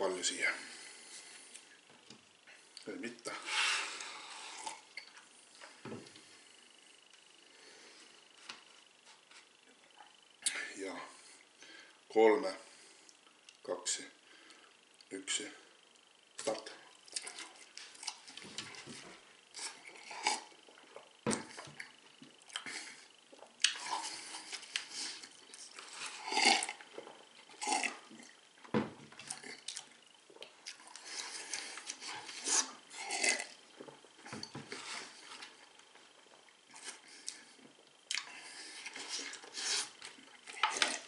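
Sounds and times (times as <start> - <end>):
man chewing: 2.5 - 5.3, 16.8 - 28.5, 29.2 - 41.0.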